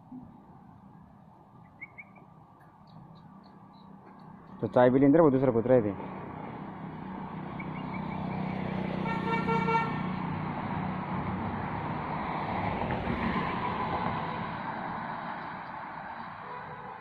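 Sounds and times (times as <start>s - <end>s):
road traffic passing: 0.0s - 17.0s
vehicle horn honking: 9.0s - 10.1s, 16.4s - 17.0s.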